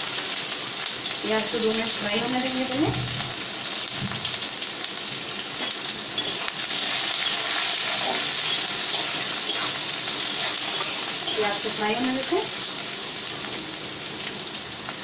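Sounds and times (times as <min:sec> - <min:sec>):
onions sizzling in oil: 0:00.0 - 0:15.0
metal spatula against pan: 0:05.6 - 0:11.8.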